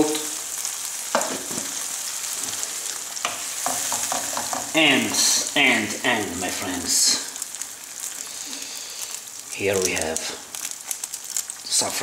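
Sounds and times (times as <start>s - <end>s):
sauce sizzling in frying pan: 0.0s - 12.0s
wooden spoon stirring: 1.1s - 6.0s.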